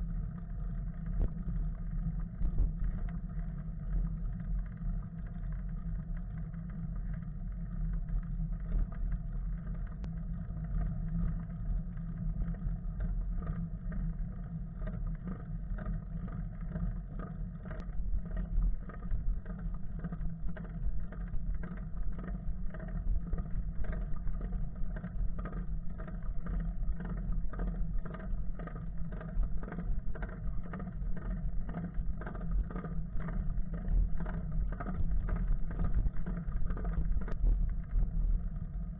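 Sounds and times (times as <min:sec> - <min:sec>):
road vibration rumble: 0:17.7 - 0:38.9.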